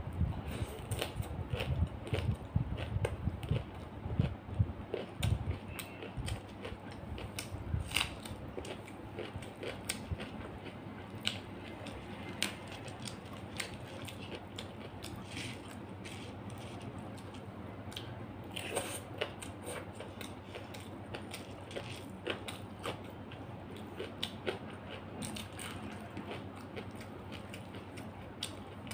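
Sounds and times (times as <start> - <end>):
chewing and mouth sounds: 0.6 - 28.9.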